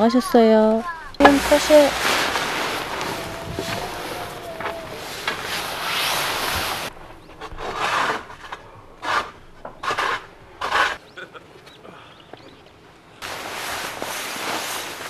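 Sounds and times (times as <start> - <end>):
rubbing scraping swishes: 1.2 - 6.9.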